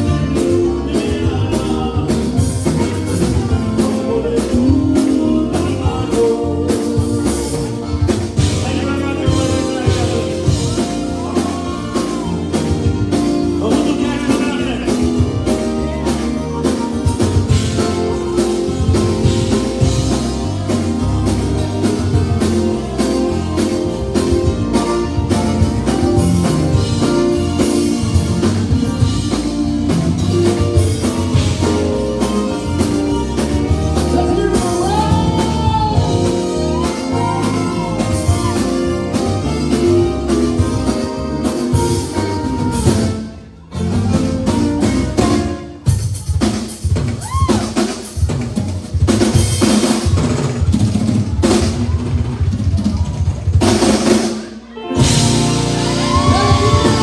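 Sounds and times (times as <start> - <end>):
person singing: 0.0 - 43.0, 54.7 - 57.0
electric guitars: 0.0 - 45.9, 54.6 - 57.0
bass: 0.0 - 57.0
drum kit beat: 0.0 - 57.0.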